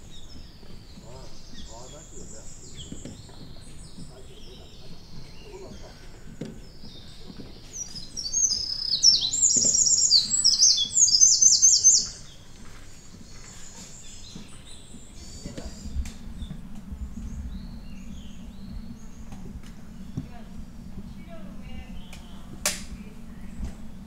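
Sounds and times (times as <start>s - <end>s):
faint high bird calls: 0.0s - 24.0s
songbird fast repeated notes: 7.7s - 12.4s.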